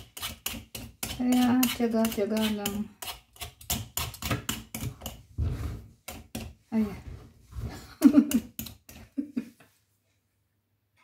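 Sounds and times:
peeler scraping pumpkin skin: 0:00.0 - 0:06.4.

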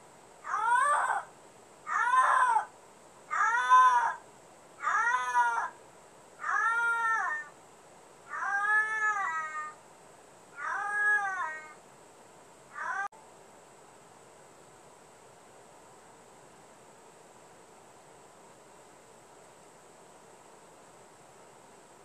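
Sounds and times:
cat meowing: 0:03.3 - 0:04.2, 0:04.8 - 0:05.7, 0:06.4 - 0:07.5, 0:08.3 - 0:09.8, 0:10.6 - 0:11.8, 0:12.8 - 0:13.1.

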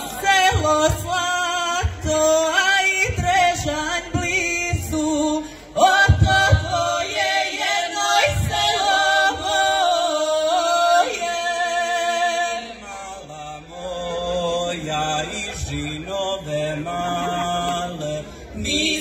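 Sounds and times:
folk vocal group singing: 0:00.0 - 0:19.0.

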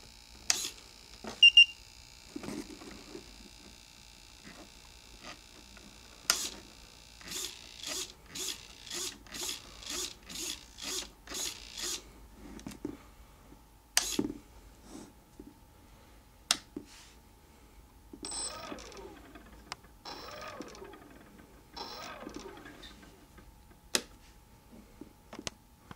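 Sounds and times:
servos whirring: 0:06.2 - 0:12.0, 0:18.3 - 0:23.4.

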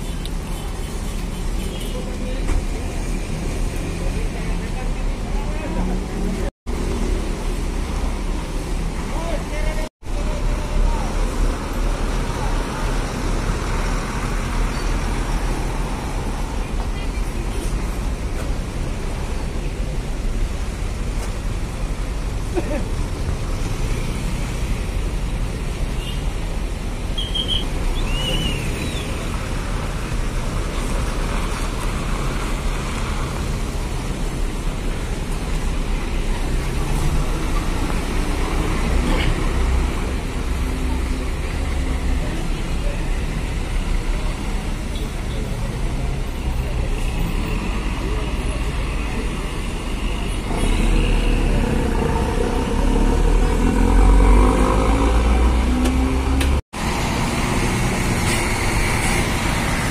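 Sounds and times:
diesel bus engine rumbling: 0:00.0 - 0:59.9
road traffic: 0:00.0 - 0:59.9
truck diesel engine passing: 0:49.4 - 0:59.9.

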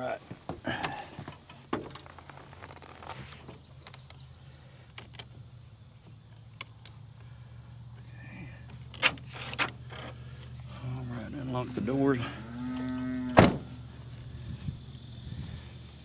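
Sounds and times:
steady low hum: 0:00.1 - 0:16.0
truck door shutting: 0:13.2 - 0:13.8.

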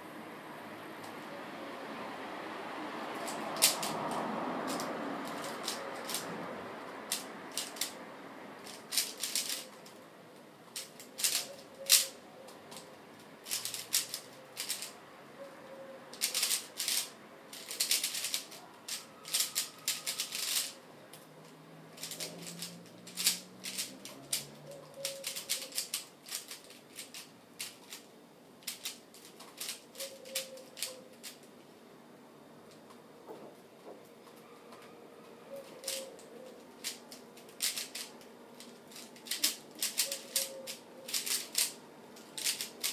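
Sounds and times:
puzzle cube plastic clicking: 0:03.2 - 0:03.9, 0:04.7 - 0:06.3, 0:07.1 - 0:08.0, 0:08.6 - 0:10.0, 0:10.7 - 0:15.0, 0:16.1 - 0:21.3, 0:22.0 - 0:31.5, 0:35.6 - 0:42.9.

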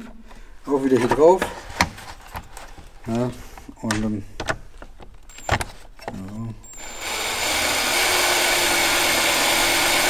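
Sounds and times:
cordless drill running: 0:06.7 - 0:10.0.

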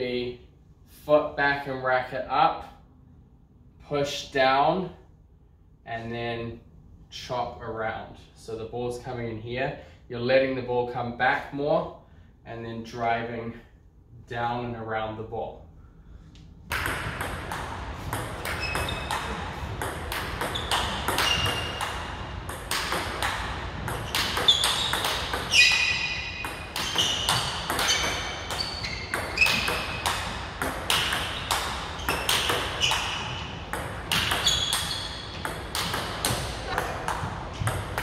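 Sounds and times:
ball bouncing on table: 0:16.7 - 0:38.0
table tennis ball hits: 0:16.7 - 0:38.0.

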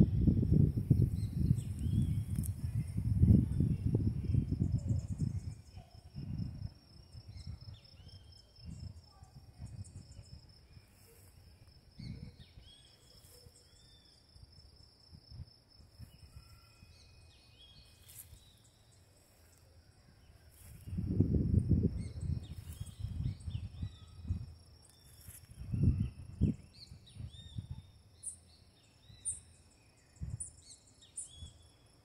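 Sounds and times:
low rumbles on microphone: 0:00.0 - 0:06.7, 0:20.8 - 0:24.6
high-pitched insect trill: 0:00.0 - 0:32.0.

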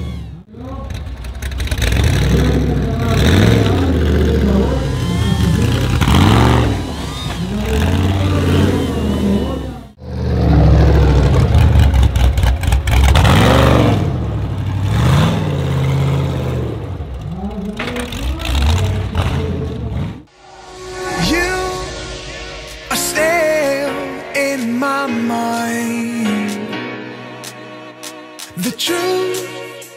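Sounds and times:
buggy engine revving: 0:00.0 - 0:20.3.

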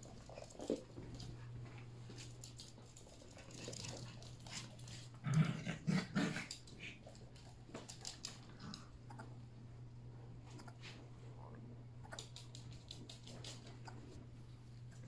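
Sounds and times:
steady low hum: 0:00.0 - 0:15.0
claws clicking on wood floor: 0:06.2 - 0:08.9.

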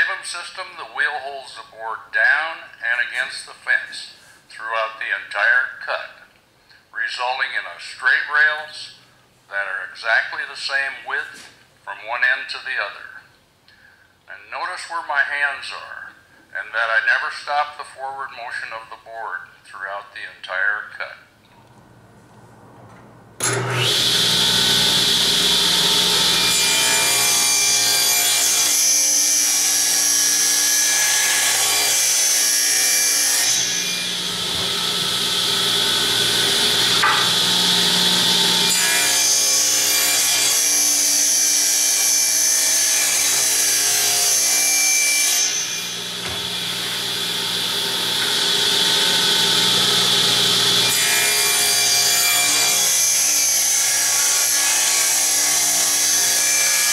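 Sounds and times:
table saw cutting wood: 0:23.4 - 0:56.9.

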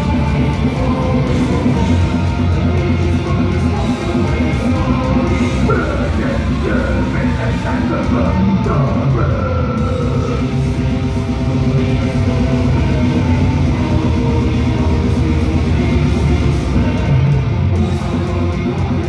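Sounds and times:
live heavy metal band: 0:00.0 - 0:19.0.

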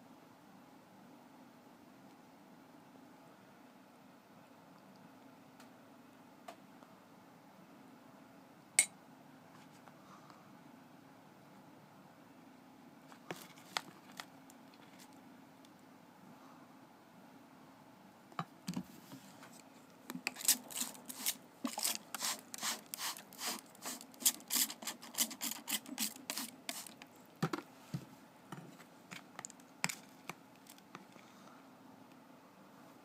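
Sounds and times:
spray bottle short sprays: 0:21.2 - 0:26.9.

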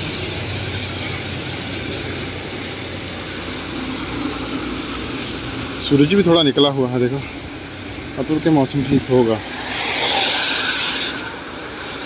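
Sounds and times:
tyres hissing on wet road: 0:00.0 - 0:12.0
vehicle engines running: 0:00.0 - 0:12.0.

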